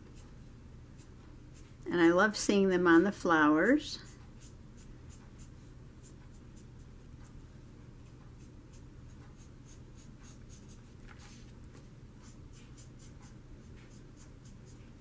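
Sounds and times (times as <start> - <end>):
marker scratching on paper: 4.0 - 7.4, 8.4 - 11.5, 12.2 - 15.0.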